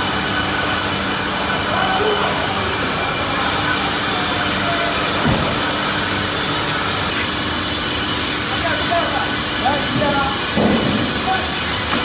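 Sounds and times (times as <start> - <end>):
band saws cutting wood: 0.0 - 12.0
feed conveyor: 0.0 - 12.0
thump: 5.2 - 5.6.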